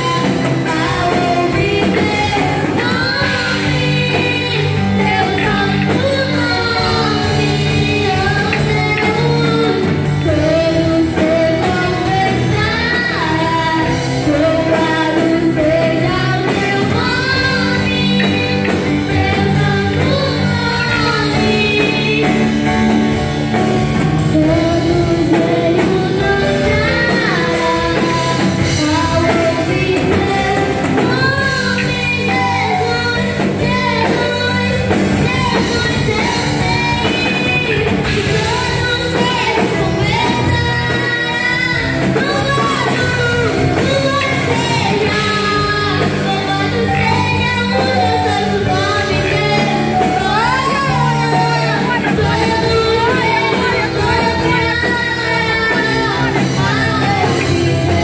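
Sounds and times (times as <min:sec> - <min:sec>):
children and woman singing: 0:00.0 - 0:23.0, 0:23.6 - 0:58.0
electronic keyboard chords: 0:00.0 - 0:58.0.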